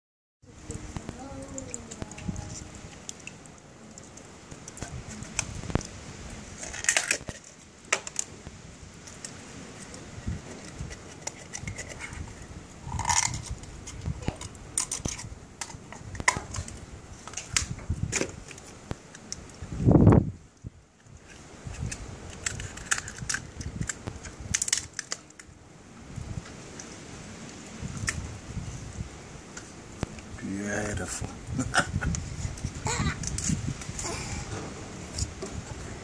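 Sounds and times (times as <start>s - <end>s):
knife scraping shells: 10.4s - 15.3s, 21.2s - 25.4s.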